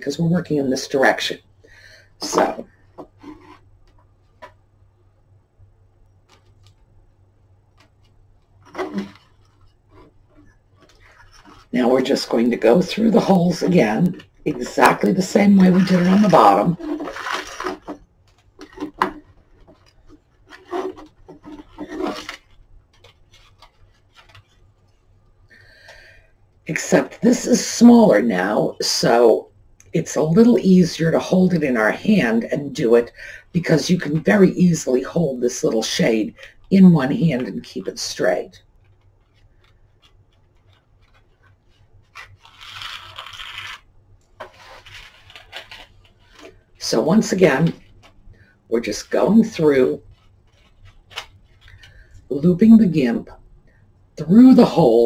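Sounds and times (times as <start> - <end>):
cord scraping through holes: 2.2 - 3.7, 7.8 - 24.7, 33.6 - 48.2.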